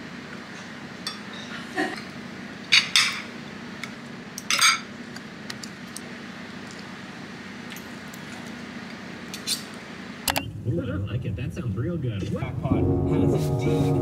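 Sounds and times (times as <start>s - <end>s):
faint steady hum: 0.0s - 14.0s
cutlery clinking on ceramic plates: 2.7s - 3.3s, 4.5s - 4.9s.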